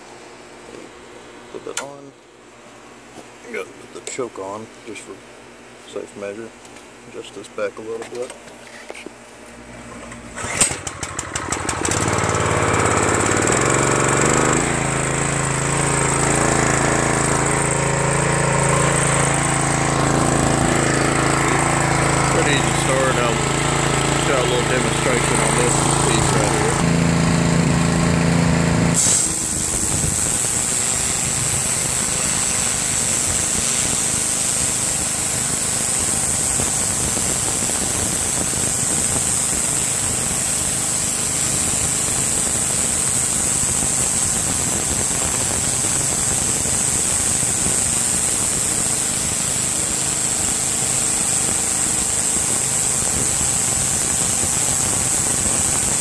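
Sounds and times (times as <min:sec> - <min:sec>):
pressure washer engine running: 0:10.1 - 0:56.0
high-pressure water jet hissing: 0:16.2 - 0:26.9, 0:28.9 - 0:56.0.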